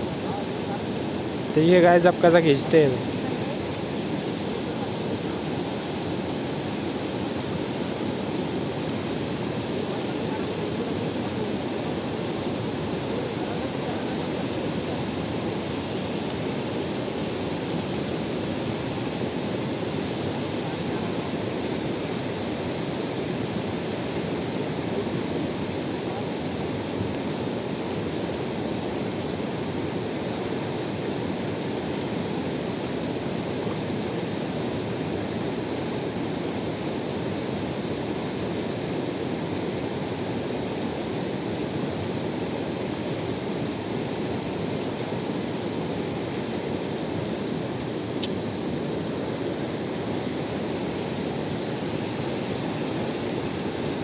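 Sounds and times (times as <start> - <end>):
river rushing over rocks: 0.0 - 54.0
faint click: 48.2 - 48.7.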